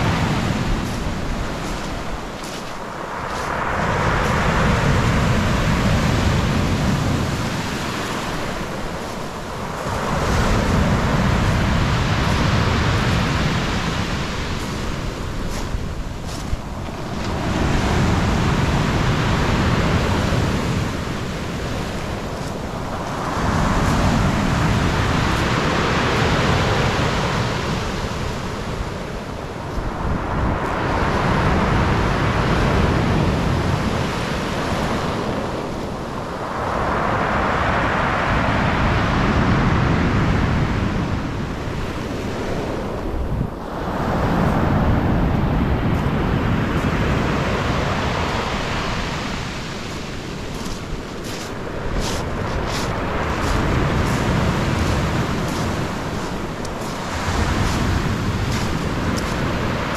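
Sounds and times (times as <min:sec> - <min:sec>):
waves breaking on beach: 0:00.0 - 0:59.9.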